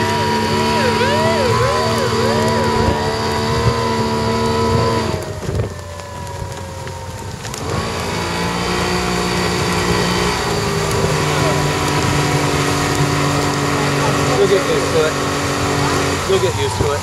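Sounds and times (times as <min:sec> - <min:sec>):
yelping siren: 0:00.0 - 0:11.7
outboard motor running: 0:00.0 - 0:17.0
wind and water noise: 0:00.0 - 0:17.0.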